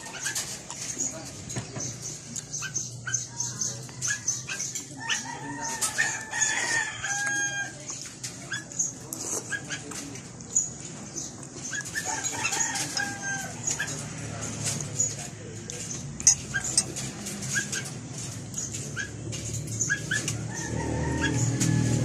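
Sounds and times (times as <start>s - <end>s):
eating sounds: 0.0s - 20.4s
rooster crowing: 5.0s - 7.8s, 20.4s - 22.0s.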